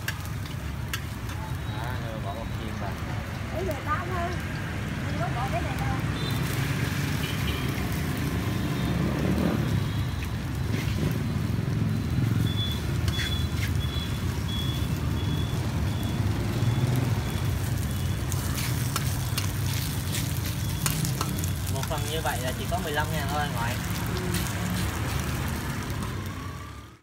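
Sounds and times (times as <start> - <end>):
food frying in a wok: 0.0 - 27.0
high electronic beep: 9.8 - 18.3, 20.5 - 21.8
metal ladle scraping a wok: 18.3 - 21.8.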